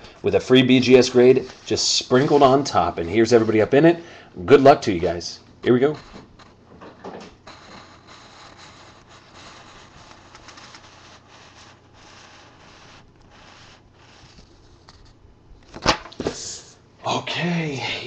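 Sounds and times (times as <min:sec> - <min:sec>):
low steady hiss: 0:00.0 - 0:18.0
handling rubbing and scratching: 0:00.5 - 0:03.9, 0:04.6 - 0:15.2.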